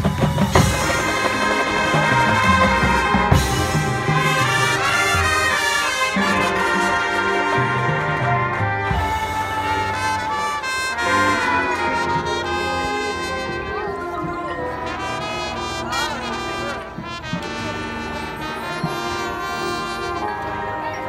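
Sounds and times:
percussion hit: 0.0 - 7.4
marching band brass chords: 0.0 - 21.0.

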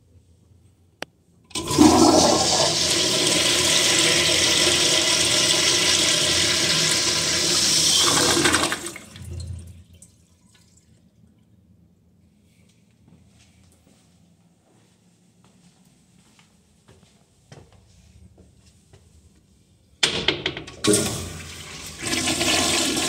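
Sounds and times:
toilet flushing water rush: 1.5 - 10.8, 20.8 - 23.0
water trickle: 9.1 - 11.5.

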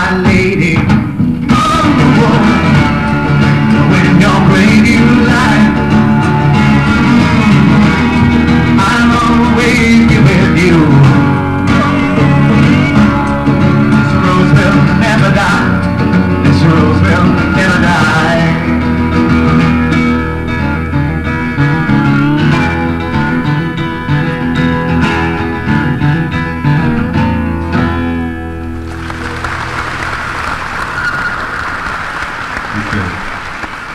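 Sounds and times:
acoustic guitar music: 0.0 - 33.6
audience applauding: 28.8 - 33.9.

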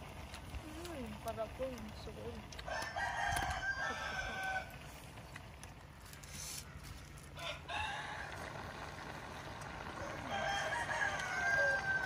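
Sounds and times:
rooster crowing: 2.7 - 4.9, 7.3 - 8.8, 10.0 - 12.0.

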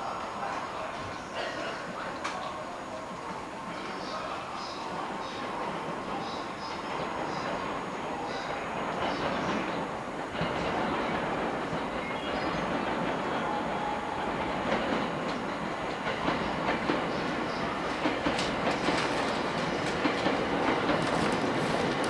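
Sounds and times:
train rumble: 0.0 - 22.0
train wheels clicking over rail joints: 14.4 - 22.0.

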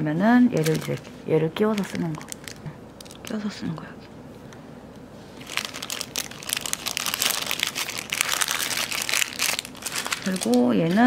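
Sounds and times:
plastic bag crinkling: 0.5 - 3.5, 5.3 - 11.0.

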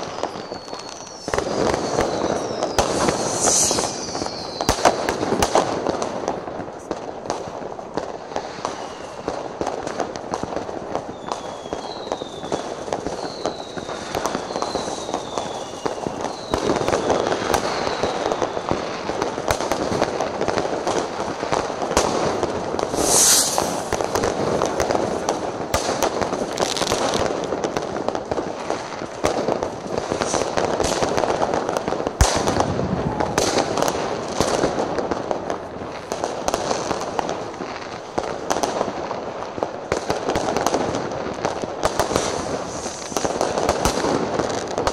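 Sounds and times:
falling firework whistles: 0.0 - 5.8, 8.4 - 9.6, 11.0 - 19.1, 20.9 - 27.3, 29.9 - 34.6, 41.8 - 44.9
loud firework hiss: 0.0 - 7.1, 8.0 - 34.8, 40.4 - 44.9
distant firework bangs and crackling: 0.0 - 44.9.

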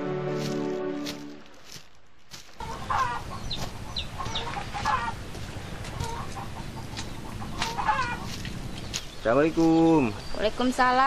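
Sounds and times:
outdoor background hiss: 0.0 - 11.0
chickens clucking: 2.6 - 10.9.

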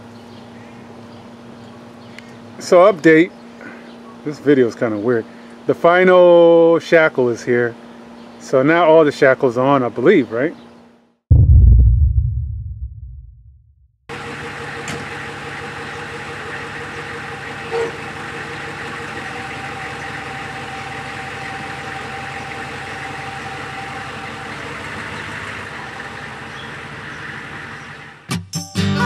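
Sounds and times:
diesel engine idling: 14.2 - 28.2.

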